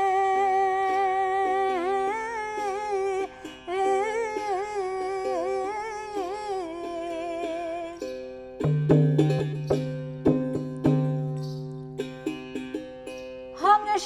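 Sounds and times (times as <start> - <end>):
woman singing: 0.0 - 8.2, 13.6 - 14.0
plucked one-string lute: 0.0 - 14.0
small hand drum: 3.8 - 14.0.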